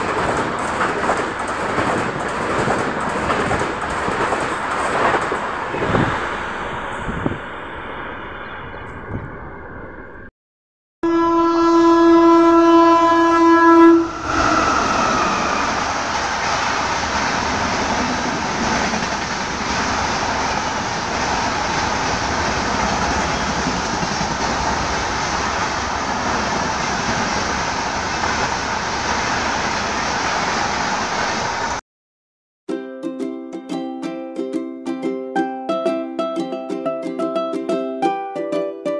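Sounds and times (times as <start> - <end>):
train coaches rushing past: 0.0 - 9.6, 14.0 - 31.8
locomotive horn blast: 11.0 - 15.8.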